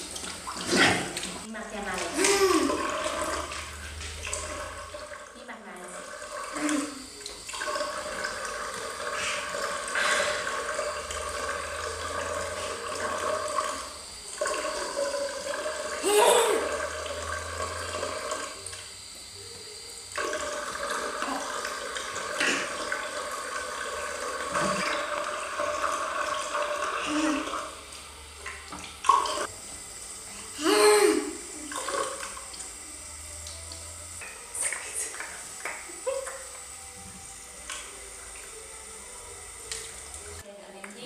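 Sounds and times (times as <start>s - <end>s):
water running from tap into bowl: 0.0s - 41.0s
toddler vocal sound: 2.2s - 3.0s, 16.0s - 16.8s, 30.6s - 31.4s.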